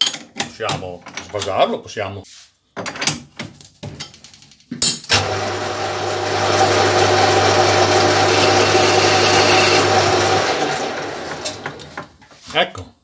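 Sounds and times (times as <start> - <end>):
lathe motor hum: 5.2 - 12.0
lathe spindle whirring: 5.2 - 12.1.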